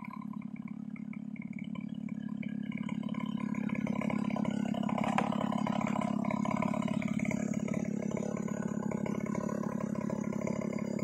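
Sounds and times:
chainsaw idling: 0.0 - 11.0.

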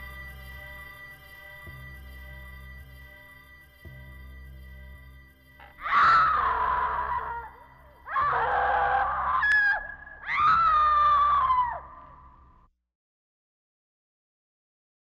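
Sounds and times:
person screaming: 5.6 - 12.1.

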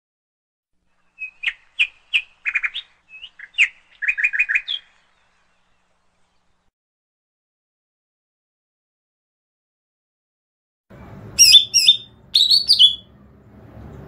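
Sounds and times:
songbird chirping: 0.9 - 6.7, 11.0 - 13.2.

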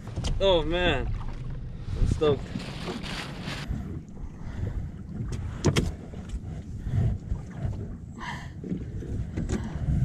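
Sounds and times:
wind buffeting microphone: 3.6 - 10.0.

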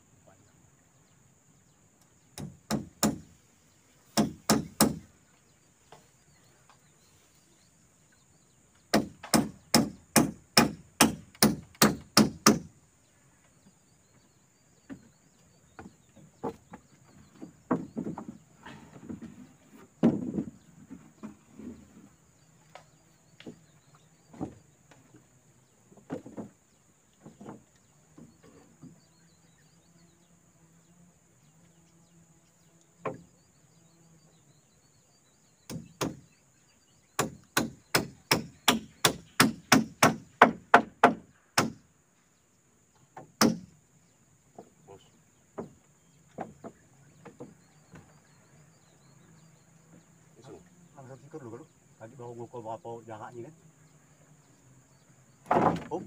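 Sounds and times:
wood being chopped: 2.4 - 3.2, 4.2 - 5.0, 8.9 - 12.7, 35.7 - 36.2, 37.2 - 41.8, 43.3 - 43.7, 55.5 - 56.0
light knocks of wood: 15.7 - 21.8, 22.6 - 25.3, 25.9 - 29.0, 45.5 - 48.1.

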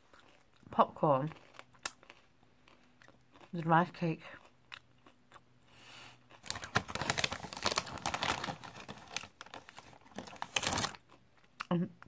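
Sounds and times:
plastic packet crinkling: 6.3 - 11.2.

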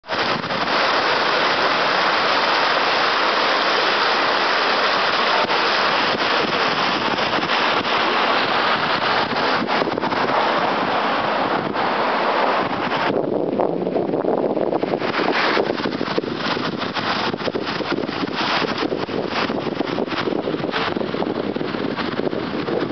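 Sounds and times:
loud steady rushing noise: 0.0 - 22.9.

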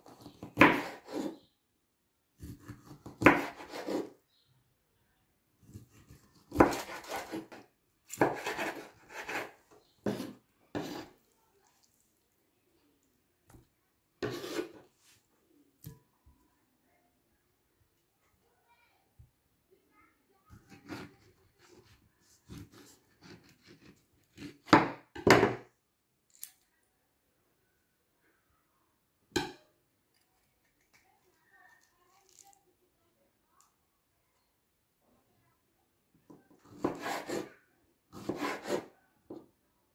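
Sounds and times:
knife slicing orange on board: 0.0 - 1.4, 2.4 - 4.2, 5.6 - 11.2, 14.2 - 14.9, 20.6 - 25.5, 36.6 - 37.5, 38.1 - 39.4.

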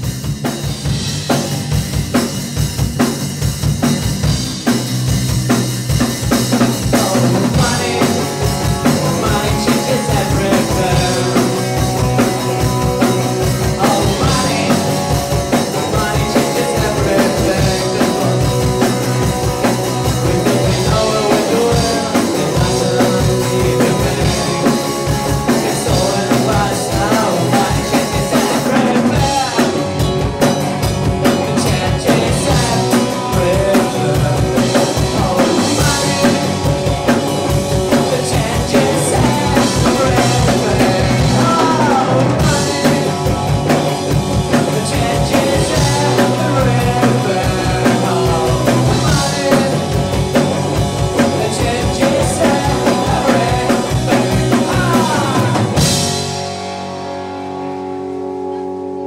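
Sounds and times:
drum kit: 0.0 - 57.8
bass guitar: 0.0 - 59.0
electric guitar: 0.0 - 59.0
man singing: 6.5 - 30.2, 31.2 - 56.3.

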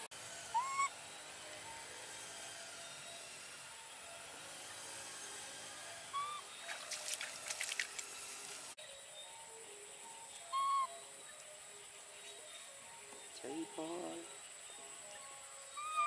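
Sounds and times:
baby monkey cooing: 0.5 - 0.9, 6.1 - 6.5, 10.5 - 10.9, 15.8 - 16.0.

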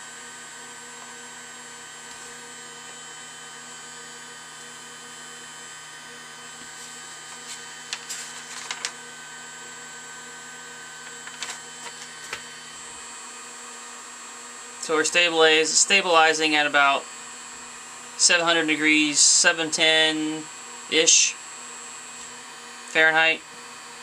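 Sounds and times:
hot air gun fan whirring: 0.0 - 24.0
paper crackling: 6.7 - 9.0, 11.0 - 12.5.

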